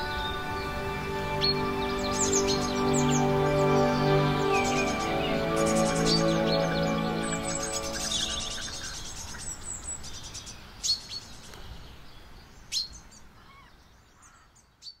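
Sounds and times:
sharp downward-sweeping chirps: 0:00.0 - 0:09.6
songbirds twittering: 0:00.0 - 0:15.0.

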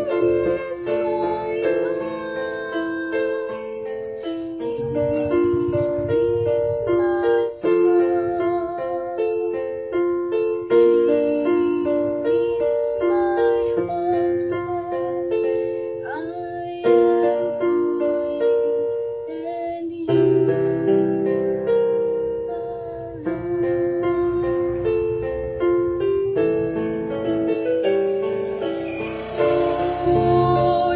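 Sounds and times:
electronic keyboard piano melody: 0:00.0 - 0:30.9
deep bass notes: 0:04.6 - 0:07.0.

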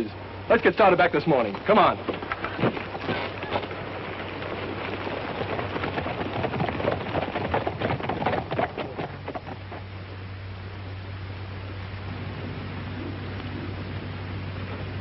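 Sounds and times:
horses galloping hoofbeats: 0:00.5 - 0:10.4.

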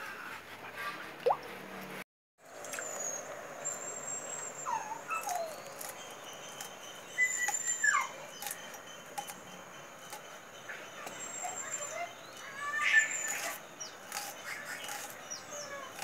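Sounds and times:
thin high chirping calls: 0:02.7 - 0:16.0
animal whining: 0:02.8 - 0:09.4, 0:10.0 - 0:16.0.

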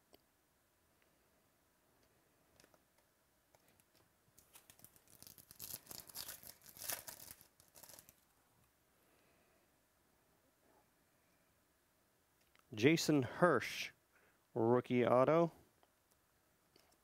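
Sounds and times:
foil pack tearing and crinkling: 0:04.4 - 0:08.2.

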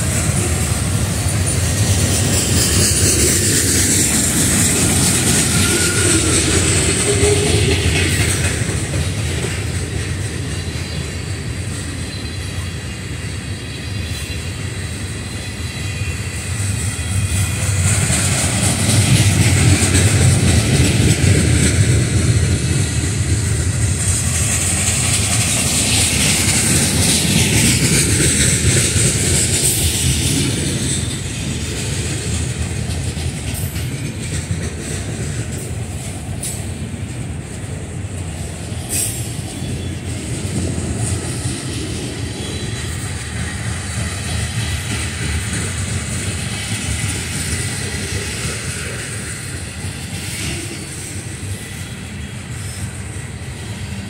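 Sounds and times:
wheels squealing: 0:00.0 - 0:32.0
train wheels rumbling on rail: 0:00.0 - 0:54.0.

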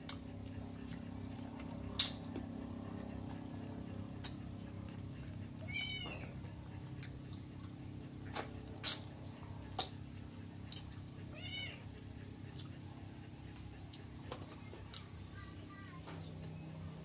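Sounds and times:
mouth clicks and smacks eating: 0:00.0 - 0:03.2, 0:03.8 - 0:04.5, 0:06.7 - 0:11.0, 0:12.4 - 0:12.8
steady low hum: 0:00.0 - 0:17.0
cat meowing: 0:05.6 - 0:06.4, 0:11.3 - 0:11.9.

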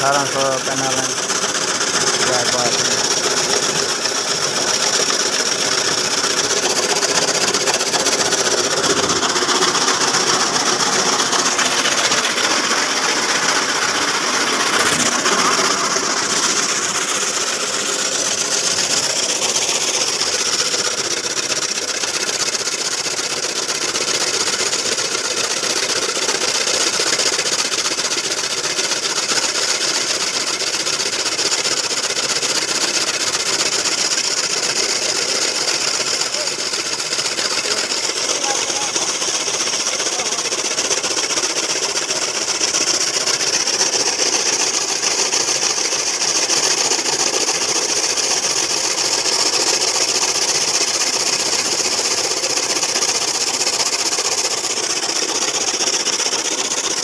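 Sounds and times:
chaff cutter chopping fodder: 0:00.0 - 0:57.0.

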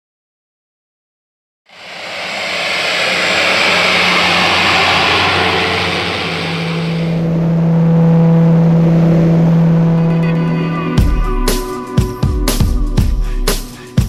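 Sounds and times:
low hum: 0:01.7 - 0:11.1
turboprop engines roaring: 0:01.7 - 0:12.0.

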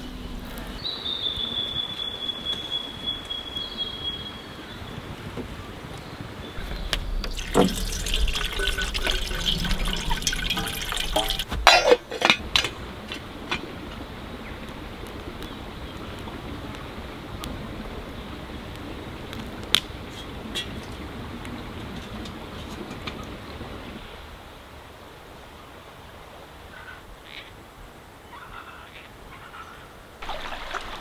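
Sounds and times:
outdoor hiss: 0:00.0 - 0:29.1
water running into metal can: 0:06.6 - 0:13.6
wood fire crackling: 0:06.6 - 0:23.6
kettle set down on metal: 0:11.2 - 0:12.7.

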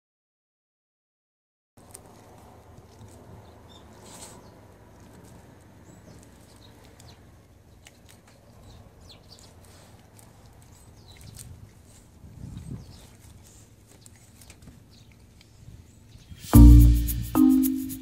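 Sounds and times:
dog chewing and licking: 0:01.8 - 0:12.2
faint steady background noise: 0:01.8 - 0:18.0.

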